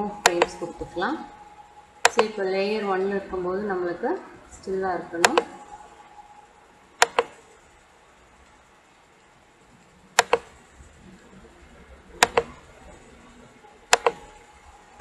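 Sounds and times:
computer mouse double-clicks: 10.2s - 10.5s, 12.2s - 12.6s, 13.9s - 14.3s.

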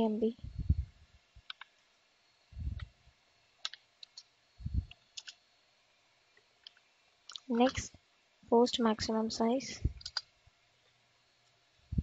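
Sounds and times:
dull low thumps: 0.4s - 1.0s, 2.5s - 2.9s, 4.6s - 4.9s
keyboard keys clicking: 1.5s - 1.7s, 3.6s - 4.3s, 4.9s - 5.4s, 10.0s - 10.3s.

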